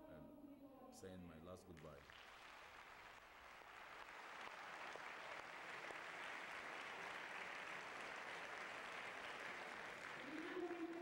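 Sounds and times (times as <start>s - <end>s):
audience applauding: 1.8s - 11.0s.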